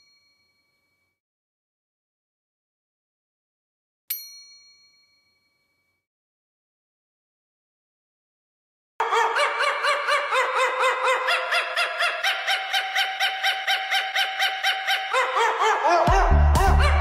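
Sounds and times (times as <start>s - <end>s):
chirping jingle notes: 0.0s - 1.2s
electronic bass beat: 16.1s - 17.0s.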